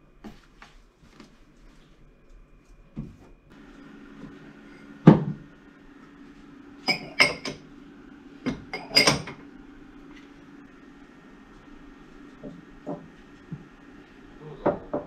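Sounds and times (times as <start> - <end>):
glass tumblers clinking: 6.8 - 7.6, 8.6 - 9.4.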